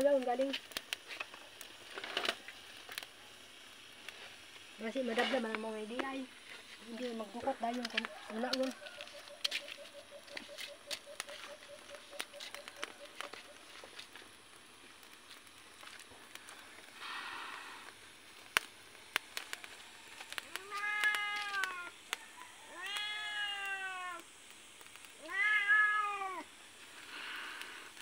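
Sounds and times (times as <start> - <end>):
cat meowing: 20.6 - 21.9, 22.7 - 24.2, 25.2 - 26.5.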